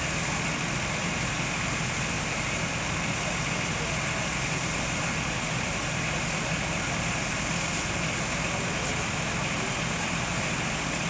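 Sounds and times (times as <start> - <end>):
fire engine pump droning: 0.0 - 11.0.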